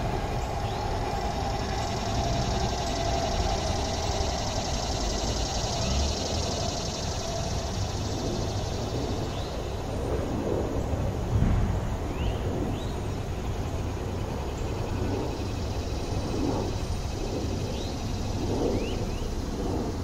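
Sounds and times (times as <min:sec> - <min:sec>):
humming tone: 0:00.0 - 0:09.3
steady low rumble: 0:00.0 - 0:20.0.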